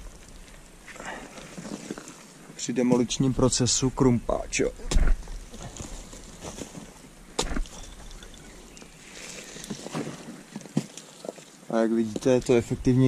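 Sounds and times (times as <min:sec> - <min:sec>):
scraping: 0:04.7 - 0:12.8.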